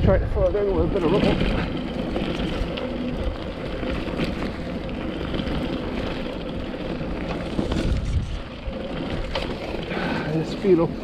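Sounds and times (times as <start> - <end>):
wind on microphone: 0.0 - 4.3, 7.4 - 9.4
bike rattling over bumps: 0.0 - 11.0
bike tyres rumbling on stones: 0.0 - 11.0.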